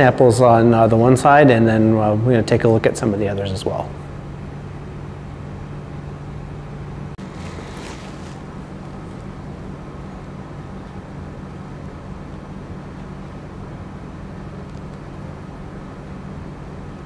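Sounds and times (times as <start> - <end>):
low room hum: 0.0 - 17.0
soft hiss: 7.2 - 9.8.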